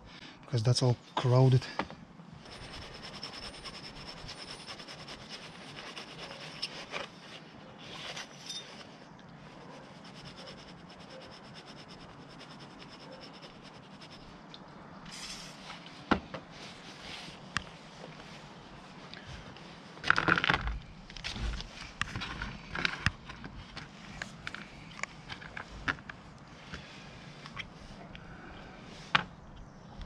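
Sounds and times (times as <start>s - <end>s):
scraping and rubbing metal: 2.4s - 14.3s.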